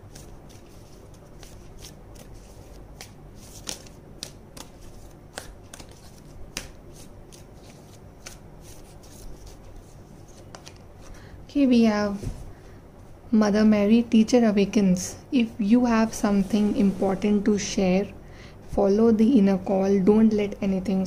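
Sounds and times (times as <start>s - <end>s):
cards being shuffled: 0.0s - 11.2s.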